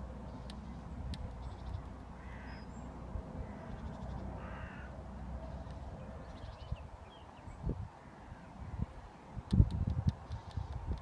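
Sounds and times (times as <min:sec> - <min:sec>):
bird cawing: 0:02.1 - 0:05.0, 0:08.0 - 0:08.8.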